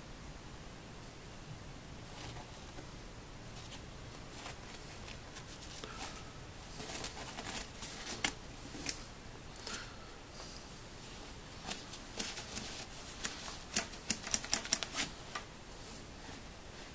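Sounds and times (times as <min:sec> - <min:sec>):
fabric rustling: 0:03.5 - 0:09.1, 0:10.4 - 0:16.9.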